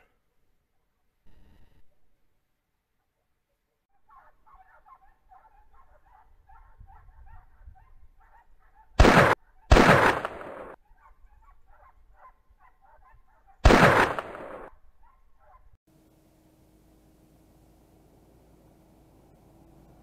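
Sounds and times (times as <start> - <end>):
distant dogs baying: 4.0 - 9.7, 10.8 - 13.7
echoing shotgun shots: 9.0 - 10.8, 13.6 - 14.7.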